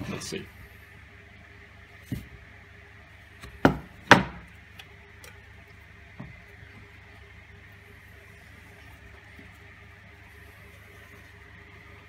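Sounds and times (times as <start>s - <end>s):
wood and metal rods knocking on workbench: 3.6s - 4.5s.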